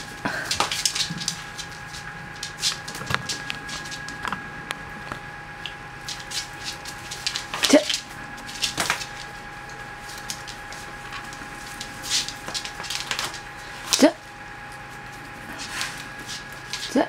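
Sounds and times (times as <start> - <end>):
faint steady hum: 0.0 - 17.0
dog claws clicking on wooden floor: 0.4 - 4.4, 5.0 - 9.4, 10.1 - 14.1.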